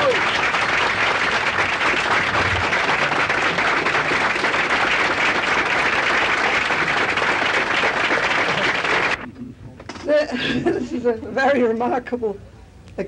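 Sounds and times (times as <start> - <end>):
audience applauding: 0.0 - 9.3.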